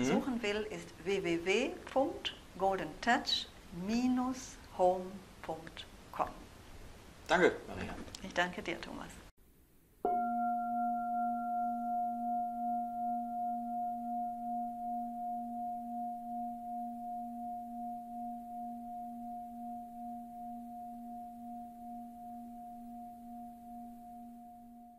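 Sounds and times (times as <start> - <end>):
singing bowl ringing: 10.0 - 24.9.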